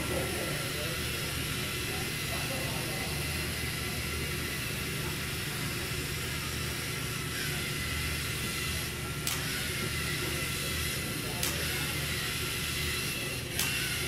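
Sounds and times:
small electric motors whirring: 0:00.0 - 0:14.0
sharp click: 0:09.2 - 0:09.6, 0:11.4 - 0:11.7, 0:13.5 - 0:13.9.

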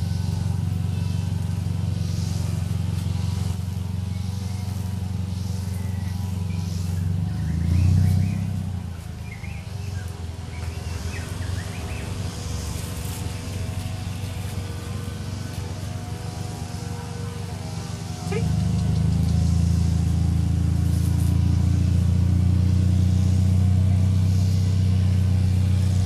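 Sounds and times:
vehicle engine humming: 0:00.0 - 0:26.0.

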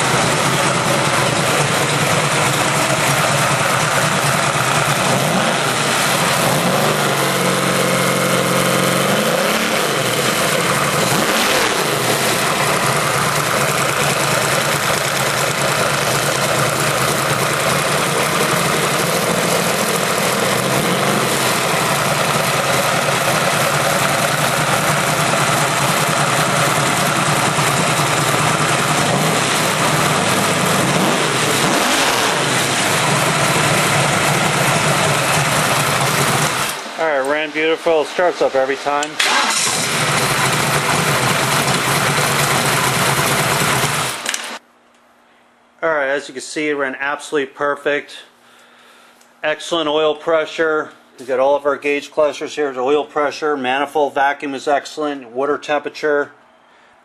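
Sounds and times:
car engine idling and revving: 0:00.0 - 0:37.0, 0:39.0 - 0:44.6.

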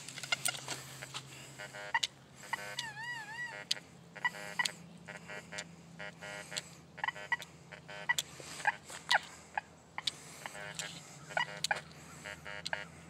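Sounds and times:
metal detector electronic tones: 0:01.6 - 0:09.2, 0:10.5 - 0:13.0
sharp clicks: 0:10.0 - 0:10.9.

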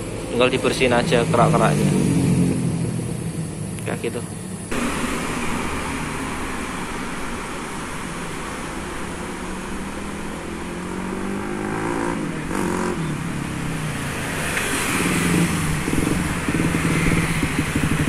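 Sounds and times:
road traffic passing: 0:00.0 - 0:18.0.

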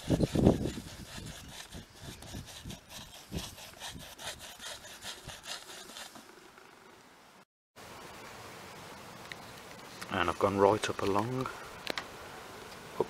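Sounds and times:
paintbrush scrubbing roofing felt: 0:00.0 - 0:06.4.

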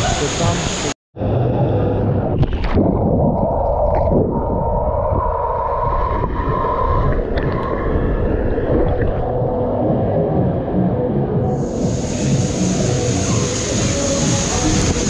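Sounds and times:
rushing pool water: 0:00.0 - 0:01.0, 0:11.6 - 0:15.0
water splashing: 0:02.4 - 0:09.6.

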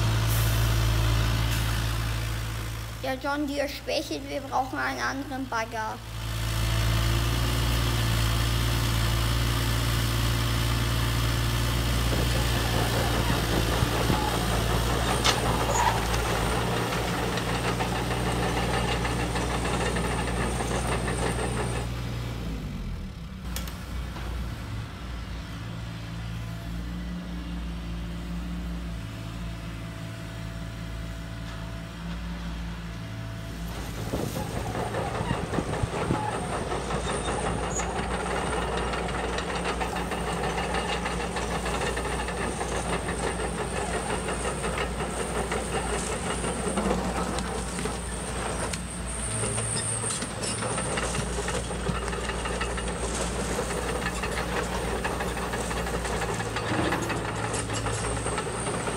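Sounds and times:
metal tracks clattering on gravel: 0:11.9 - 0:21.9, 0:33.6 - 0:58.9.

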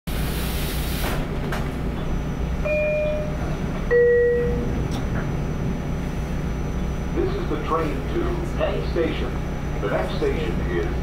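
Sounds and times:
train car rumbling: 0:00.1 - 0:11.0.

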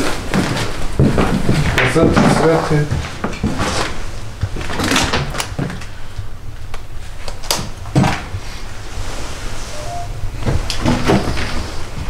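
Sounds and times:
objects rustling and knocking: 0:00.0 - 0:06.3, 0:10.4 - 0:12.0
low steady rumble: 0:02.7 - 0:12.0.

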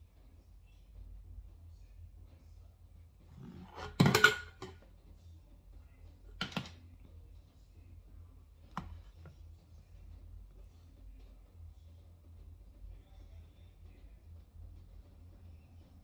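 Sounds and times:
makeup items clattering: 0:03.6 - 0:04.8, 0:06.4 - 0:06.8.

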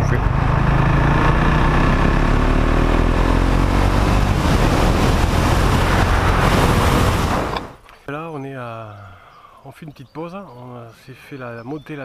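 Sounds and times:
motorcycle engine running: 0:00.0 - 0:06.0
wind rush on microphone: 0:03.0 - 0:07.8.

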